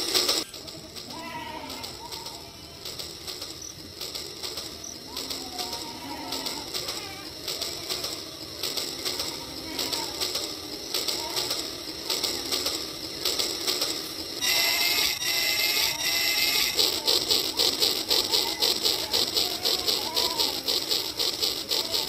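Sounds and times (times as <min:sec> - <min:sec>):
toy train motor whirring: 0:00.0 - 0:22.0
toy train wheels clicking: 0:00.0 - 0:22.0
falling electronic tones: 0:14.4 - 0:19.6.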